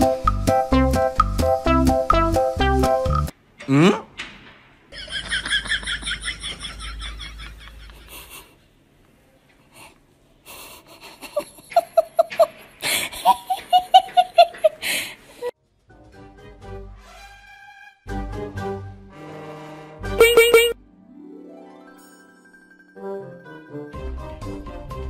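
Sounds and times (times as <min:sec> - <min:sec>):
person laughing: 0:05.0 - 0:08.6, 0:10.5 - 0:15.5
high-pitched giggling: 0:13.1 - 0:14.8.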